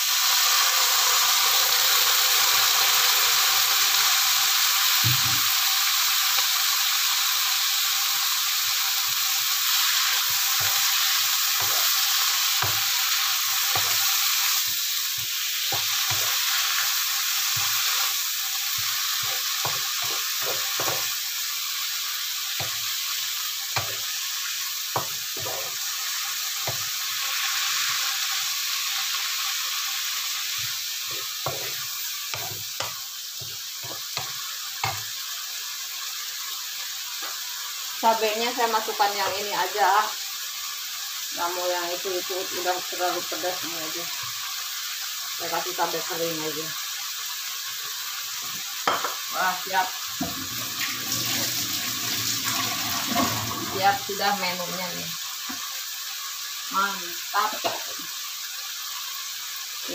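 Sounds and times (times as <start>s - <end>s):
leaves sizzling in a hot wok: 0.0s - 59.9s
wooden spatula scraping and tapping pan: 18.8s - 21.1s, 30.6s - 35.0s
water poured into wok: 50.2s - 53.9s.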